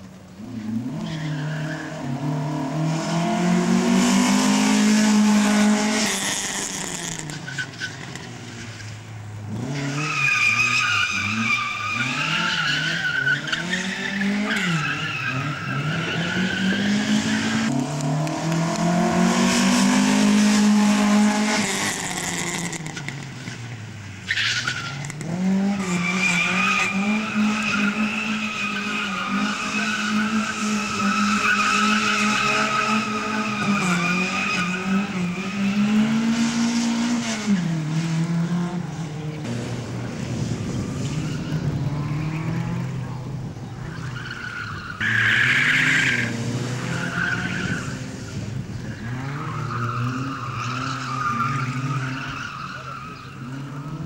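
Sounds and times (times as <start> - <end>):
car engine revving: 0.4 - 7.4, 8.0 - 23.5.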